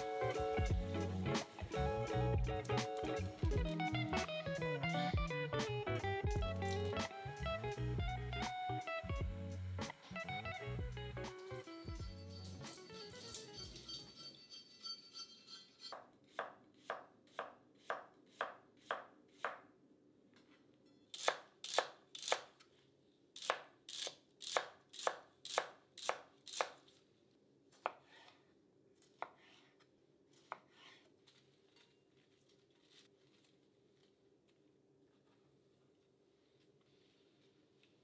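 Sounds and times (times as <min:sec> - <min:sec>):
knife chopping on cutting board: 0:16.3 - 0:19.6.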